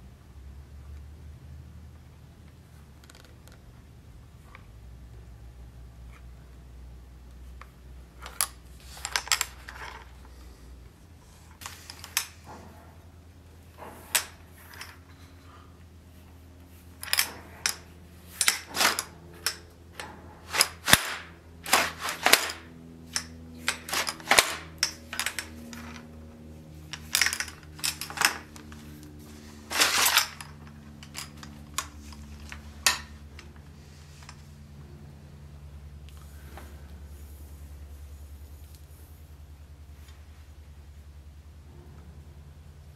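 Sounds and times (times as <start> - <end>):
low hum: 3.9 - 42.9
sword and scabbard clicking: 20.5 - 26.0.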